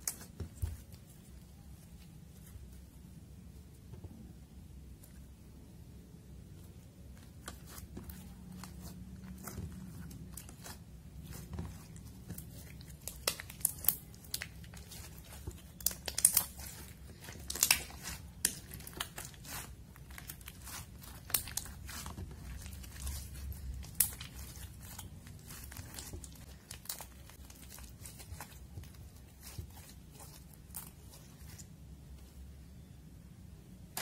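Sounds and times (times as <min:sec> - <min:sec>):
slime sticky clicks and crackles: 0:13.0 - 0:28.4.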